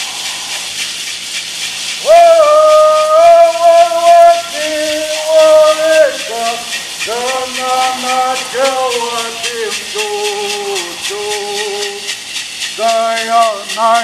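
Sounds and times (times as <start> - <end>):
gourd rattles shaking: 0.0 - 14.0
person singing long notes: 2.0 - 12.1.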